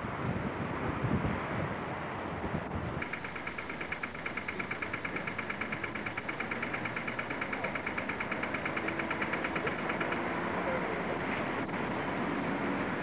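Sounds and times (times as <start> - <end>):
rapid high-pitched ticking: 3.0 - 10.5
tram rumbling on track: 3.0 - 13.0.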